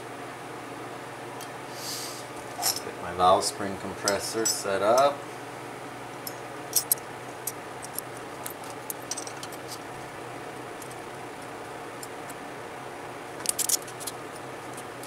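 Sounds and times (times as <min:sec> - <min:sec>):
steady background hum: 0:00.0 - 0:15.0
metal parts clinking: 0:02.6 - 0:02.9, 0:06.7 - 0:07.0, 0:07.8 - 0:09.8, 0:13.4 - 0:14.8.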